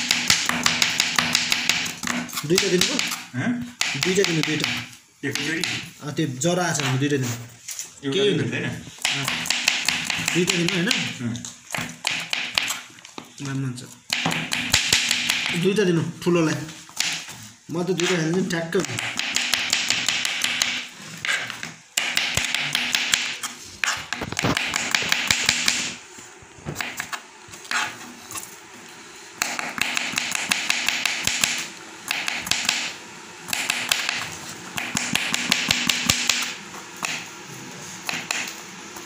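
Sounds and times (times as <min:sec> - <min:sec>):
knife chopping on board: 0:00.0 - 0:03.2, 0:03.8 - 0:05.9, 0:09.0 - 0:12.8, 0:14.1 - 0:15.6, 0:18.0 - 0:25.9, 0:26.7 - 0:28.0, 0:29.4 - 0:32.9, 0:33.5 - 0:37.3, 0:38.1 - 0:38.6.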